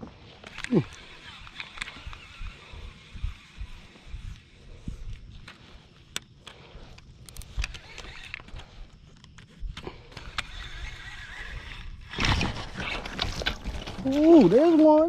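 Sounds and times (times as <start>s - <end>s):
fishing reel whirring: 0.3s - 15.0s.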